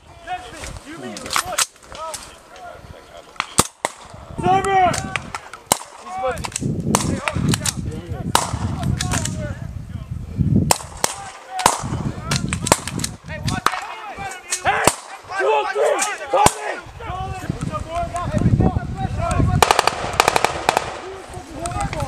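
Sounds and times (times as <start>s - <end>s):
rifle shots: 19.6s - 21.2s.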